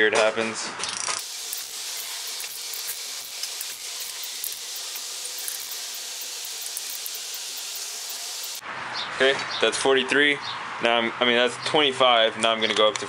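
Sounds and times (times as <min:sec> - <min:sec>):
socket ratchet clicking: 0:01.2 - 0:08.6
steady hiss: 0:01.2 - 0:08.6.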